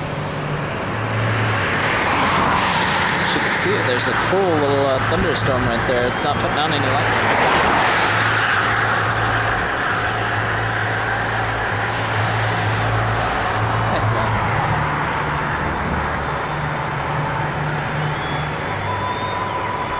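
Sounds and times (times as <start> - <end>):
car engine hum: 0.0 - 19.9.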